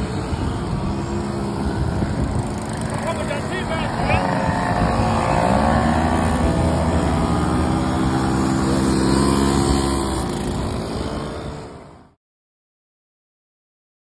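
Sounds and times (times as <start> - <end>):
moped engines passing by: 0.0 - 12.2.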